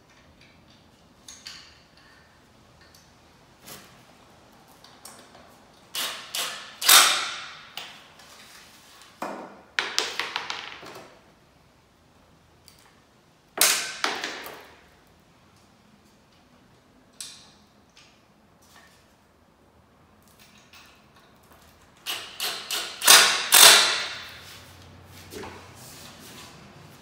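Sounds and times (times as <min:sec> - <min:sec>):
cordless driver driving screws: 0:22.0 - 0:24.3.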